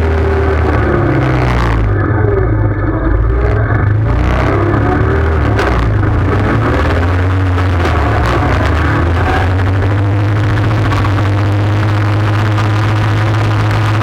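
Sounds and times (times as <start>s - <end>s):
quad bike engine running: 0.0s - 14.0s.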